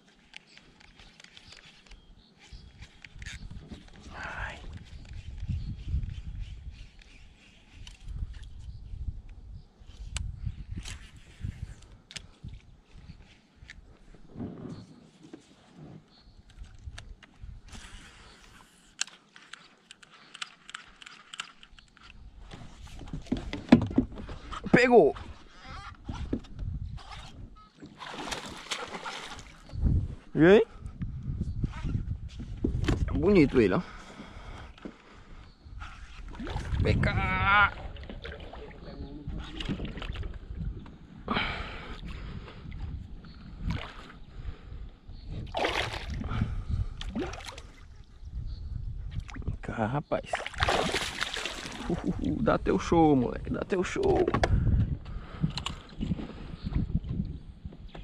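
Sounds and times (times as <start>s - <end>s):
water sloshing and splashing: 27.0s - 29.7s, 36.2s - 37.1s, 37.7s - 40.6s, 45.4s - 46.4s, 47.0s - 48.1s, 50.2s - 52.3s
short loud splashes: 50.3s - 52.0s.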